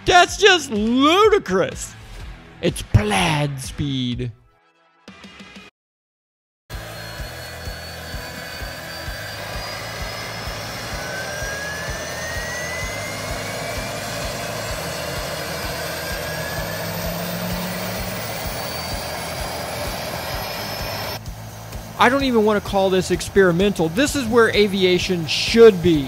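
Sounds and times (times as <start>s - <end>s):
thin whine rising in pitch: 6.7s - 26.0s
turboprop engine running: 6.7s - 26.0s.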